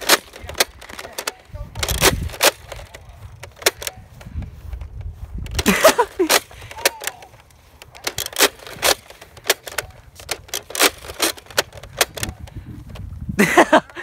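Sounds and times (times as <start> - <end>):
footsteps on concrete: 2.9 - 8.0.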